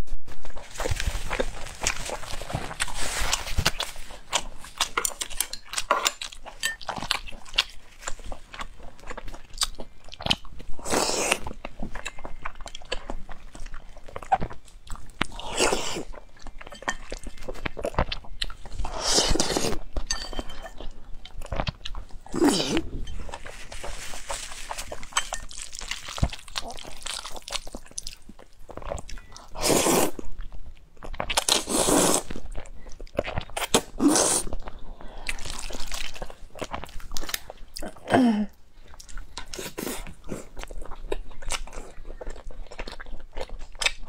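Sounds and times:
wet chewing: 0:00.5 - 0:44.0
slurping noodles: 0:18.9 - 0:19.8, 0:31.6 - 0:32.3.

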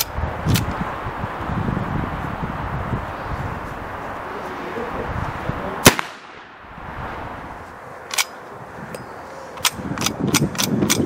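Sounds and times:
rifle shot: 0:05.8 - 0:06.6.

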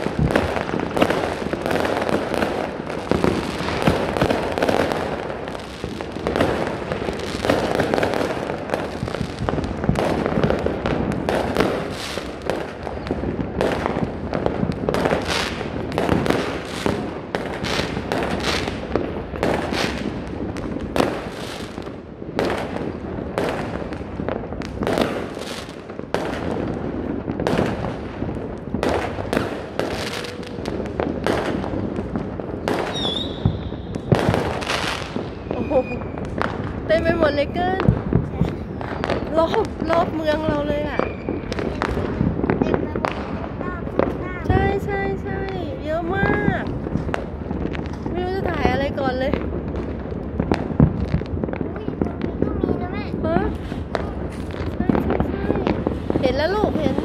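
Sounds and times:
fireworks crackling: 0:00.0 - 0:57.0
sharp firework bangs: 0:00.0 - 0:57.0.

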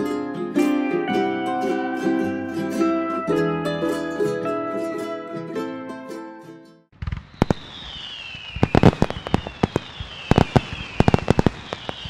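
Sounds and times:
firework whistles sliding down: 0:07.0 - 0:12.0
fireworks cracking and banging: 0:07.0 - 0:12.0.

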